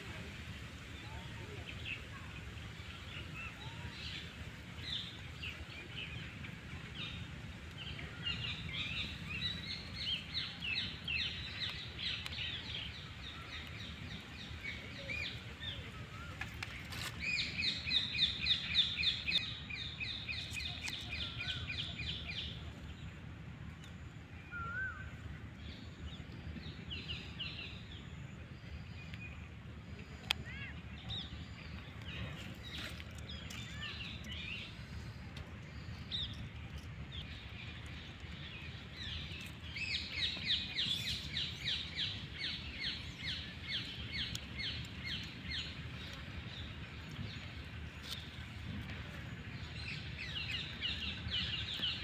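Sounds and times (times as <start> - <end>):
low outdoor rumble: 0.0 - 52.0
birds chirping and calling: 7.8 - 22.6, 30.4 - 52.0.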